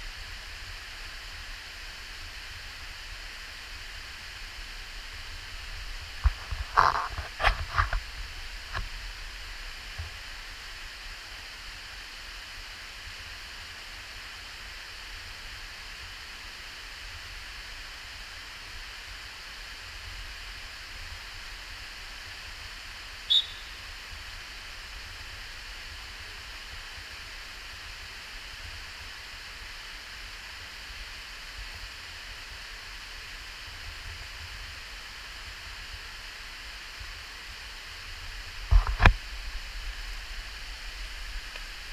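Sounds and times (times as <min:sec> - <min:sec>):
short high-pitched chirp: 0:23.3 - 0:23.8.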